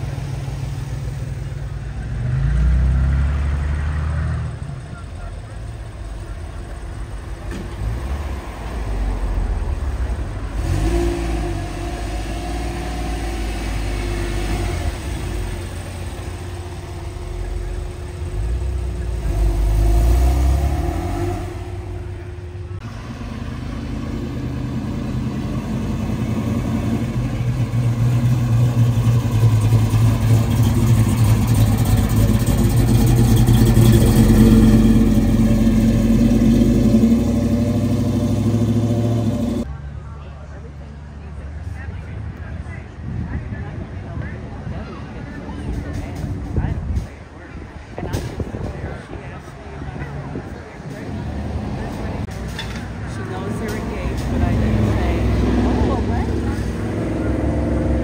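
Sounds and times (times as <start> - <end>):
car engines revving: 0.0 - 58.0
engine running at steady pitch: 14.0 - 39.7.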